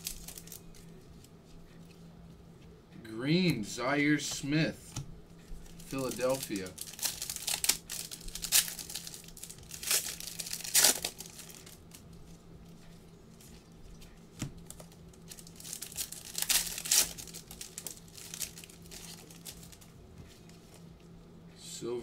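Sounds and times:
foil packs crinkling and tearing: 0.0s - 0.9s, 5.7s - 12.1s, 14.6s - 19.9s.

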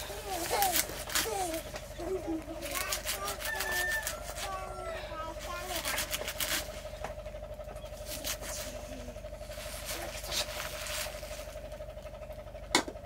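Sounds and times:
knife cutting greens: 0.0s - 1.6s, 2.6s - 4.6s, 5.6s - 6.7s
leaves rustling: 0.0s - 7.0s, 7.9s - 11.8s
steady low hum: 0.0s - 13.0s.

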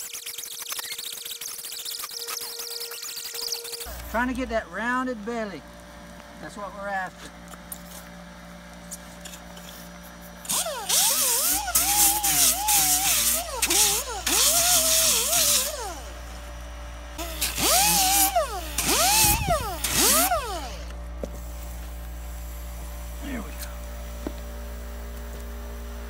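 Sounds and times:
air angle grinder whining: 9.1s - 25.9s.

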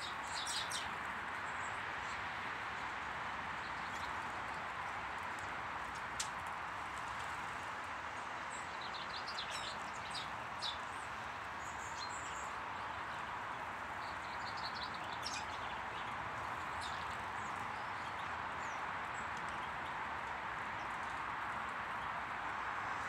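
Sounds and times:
small birds chirping: 0.0s - 2.2s, 8.5s - 21.2s.

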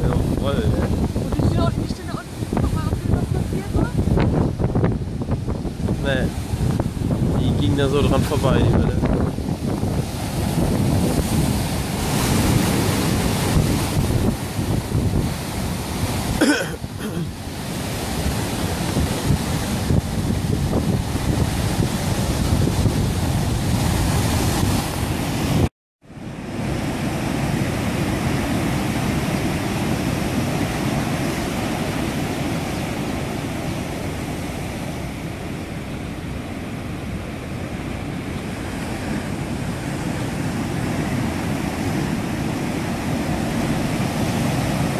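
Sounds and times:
wind buffeting microphone: 0.0s - 25.7s
surf breaking over rocks: 0.0s - 44.9s.

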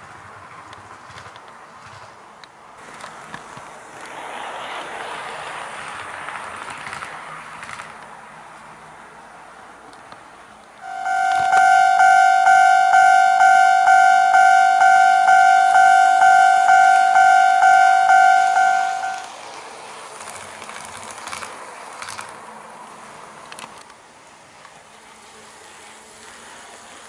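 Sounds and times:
model train wheels clicking on track: 0.0s - 8.1s, 19.1s - 27.0s
level crossing warning bell: 10.8s - 19.3s.

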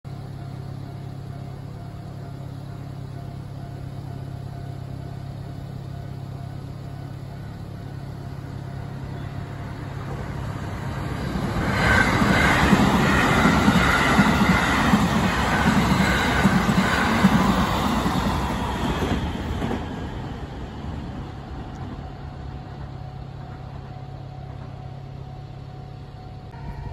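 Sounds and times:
electric train passing: 0.1s - 26.9s
train wheels on rails: 0.1s - 26.9s.

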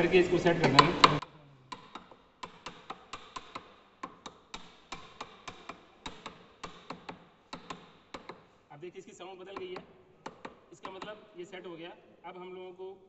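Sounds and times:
wooden mallet tapping on metal: 0.6s - 8.6s, 9.4s - 11.7s.

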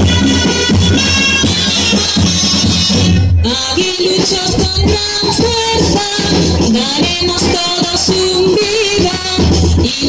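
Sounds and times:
folk melody in held notes: 0.0s - 3.2s
quick percussive beat: 0.0s - 10.0s.

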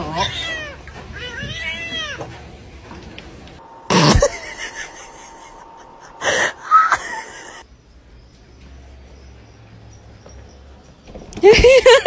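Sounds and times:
cat meowing: 0.0s - 2.3s
loud burst of noise: 3.6s - 7.6s
sharp noises: 3.6s - 7.6s.

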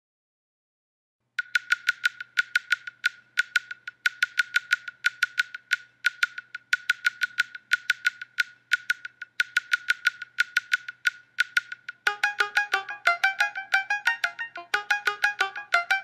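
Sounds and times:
percussive music of sharp clicks: 1.4s - 16.0s.

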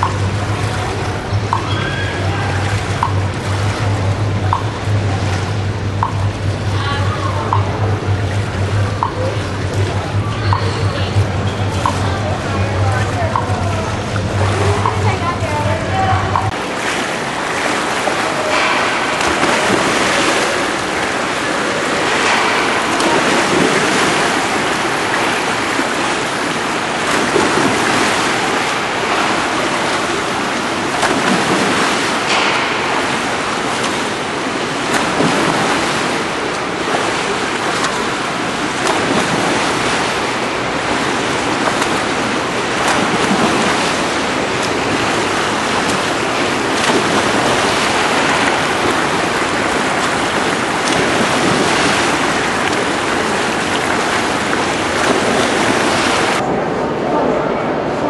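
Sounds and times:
swimmer splashing into water: 0.0s - 56.4s
pool water rushing: 0.0s - 58.0s.

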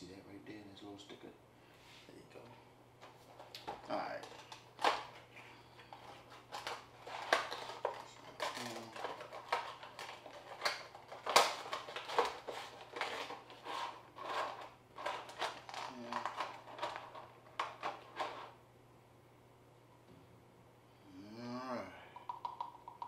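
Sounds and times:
plastic packaging crinkling: 5.8s - 18.6s.

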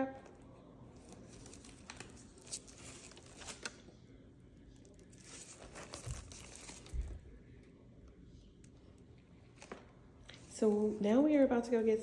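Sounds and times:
purse and packaging rustling: 0.2s - 3.9s, 4.8s - 7.3s.

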